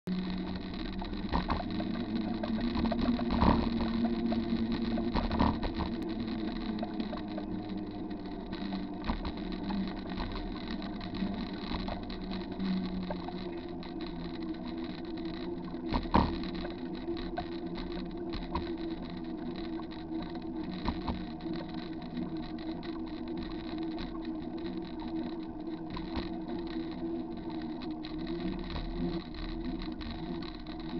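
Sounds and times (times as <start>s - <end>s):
bicycle tyres rolling on concrete: 0.1s - 30.9s.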